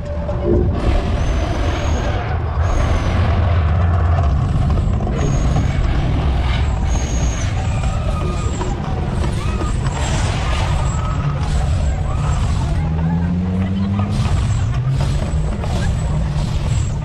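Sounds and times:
deep steady rumble: 0:00.0 - 0:17.0
gas flames whooshing: 0:00.1 - 0:17.0.

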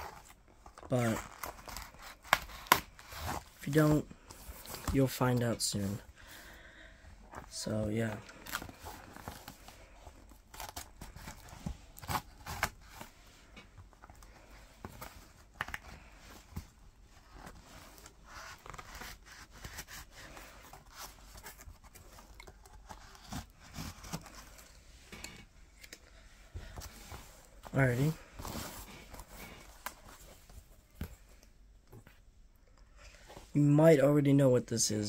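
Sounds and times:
cardboard handling scrapes: 0:07.4 - 0:25.2, 0:26.6 - 0:30.6.

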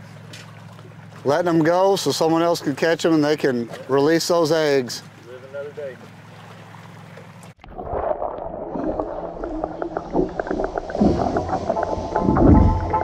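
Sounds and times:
muffled underwater sloshing: 0:00.0 - 0:13.0
low hum: 0:07.4 - 0:13.0.

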